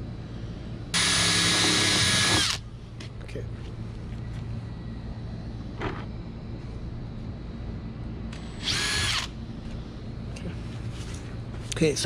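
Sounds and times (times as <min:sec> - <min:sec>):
cordless drill drilling plastic: 0:01.0 - 0:02.6, 0:08.6 - 0:09.3.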